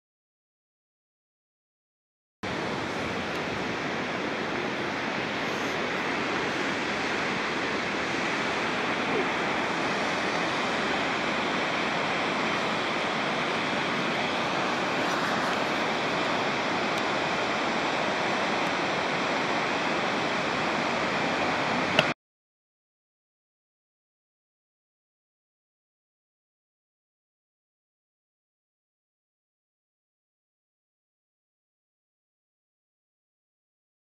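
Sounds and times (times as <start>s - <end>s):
steady rushing outdoor noise: 2.4s - 22.2s.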